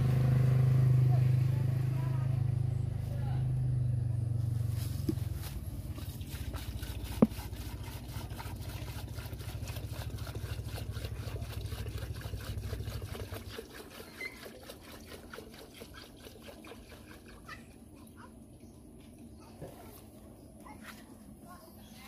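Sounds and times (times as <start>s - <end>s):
diesel glugging from a jerry can: 5.1s - 18.3s.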